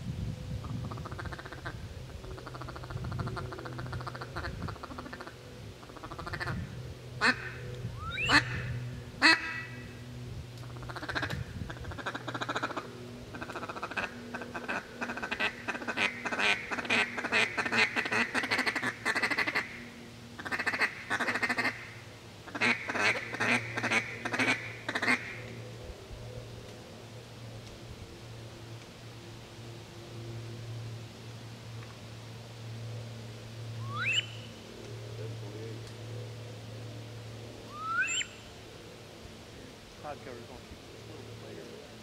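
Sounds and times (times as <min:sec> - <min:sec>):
ducks calling: 0:00.6 - 0:25.6, 0:33.8 - 0:34.6, 0:37.7 - 0:38.5.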